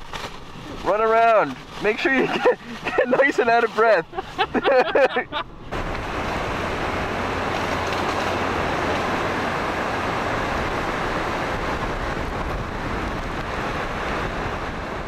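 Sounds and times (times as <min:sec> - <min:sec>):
wind buffeting microphone: 0:04.0 - 0:15.0
strong wind rushing: 0:04.4 - 0:15.0.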